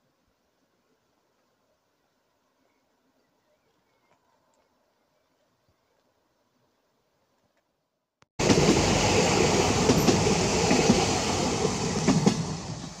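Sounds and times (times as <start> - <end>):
sharp clicks of train wheels: 8.4 - 13.0
steam train wheels clattering on rails: 8.4 - 13.0.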